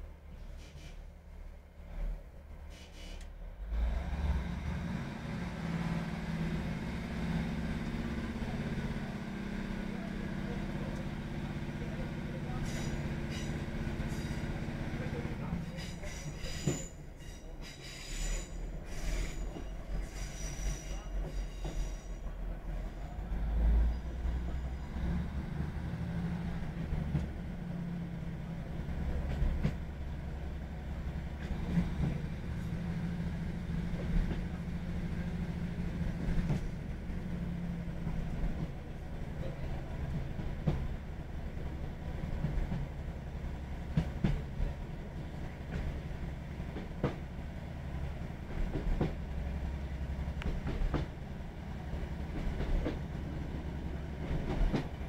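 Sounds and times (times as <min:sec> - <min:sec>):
train rumble: 0:00.0 - 0:55.0
faint high wheel squeal: 0:15.7 - 0:23.2, 0:23.9 - 0:25.0.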